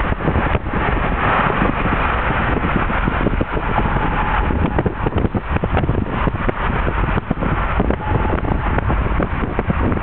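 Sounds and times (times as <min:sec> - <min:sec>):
car road and engine noise: 0:00.0 - 0:10.0
wind buffeting microphone: 0:00.0 - 0:10.0.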